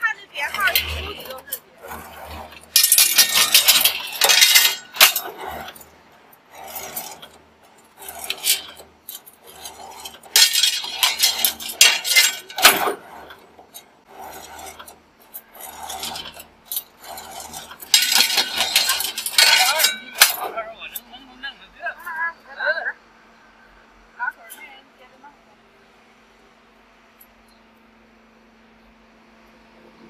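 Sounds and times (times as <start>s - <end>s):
metal rebar clattering and scraping: 0.0s - 21.3s
low machine hum: 0.0s - 30.0s.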